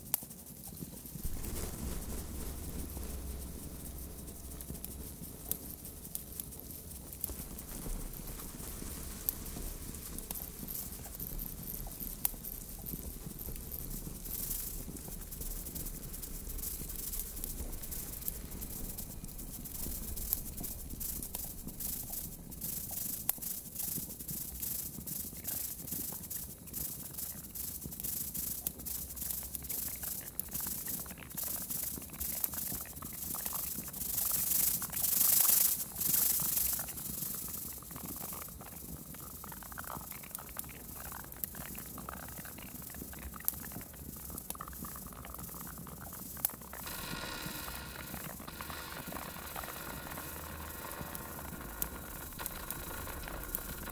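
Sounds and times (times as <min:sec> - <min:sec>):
crackling electronic noise: 0:00.0 - 0:53.9
low hum: 0:01.2 - 0:23.3.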